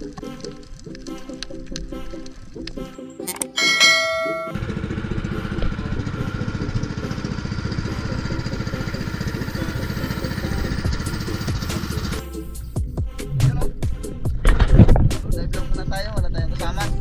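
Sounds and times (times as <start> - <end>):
wind: 0.0 - 17.0
short chime: 3.6 - 4.6
small boat engine pulsing: 3.6 - 12.2.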